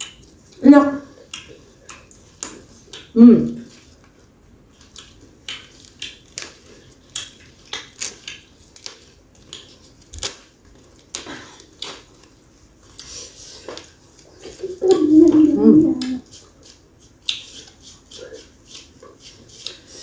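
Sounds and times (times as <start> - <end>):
leaves crackling and snapping: 5.8 - 12.3.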